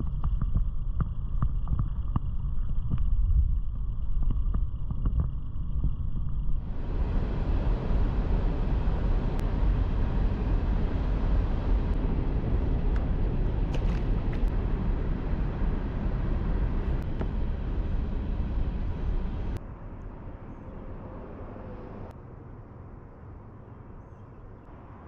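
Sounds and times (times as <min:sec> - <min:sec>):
wind buffeting microphone: 0:00.0 - 0:19.6.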